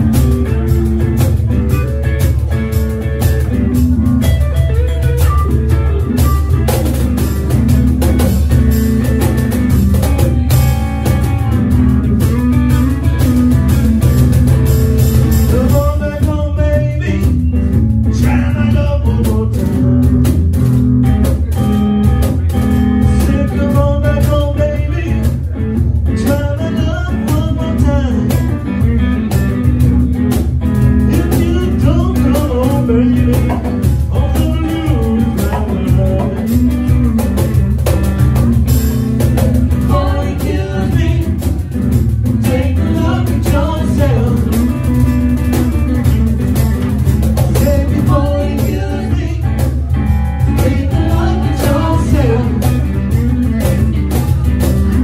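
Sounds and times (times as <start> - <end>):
cajon beat: 0.0 - 55.0
electric guitar: 0.0 - 55.0
man singing: 15.2 - 20.4, 22.5 - 29.2, 31.0 - 37.2, 39.6 - 55.0.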